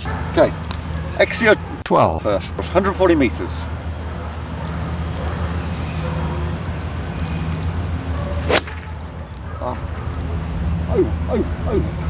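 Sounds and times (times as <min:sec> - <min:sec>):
golf club striking ball: 0:08.4 - 0:08.9.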